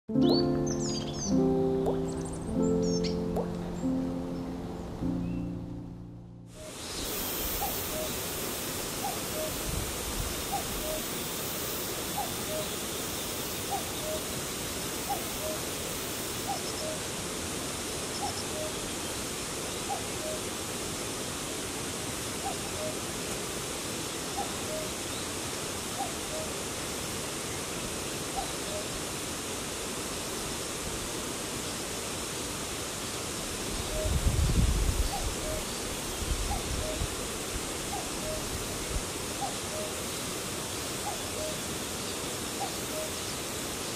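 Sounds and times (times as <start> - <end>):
cuckoo calling: 0.1 - 6.0, 6.6 - 9.8, 10.5 - 11.3, 12.1 - 13.0, 13.6 - 14.4, 15.0 - 15.7, 18.2 - 18.9, 19.9 - 20.5, 22.4 - 23.0, 24.4 - 25.0, 33.8 - 34.2, 35.0 - 35.8, 37.9 - 38.6, 39.4 - 40.2, 41.0 - 41.6, 42.6 - 43.2
insects hissing in grass: 6.6 - 43.9.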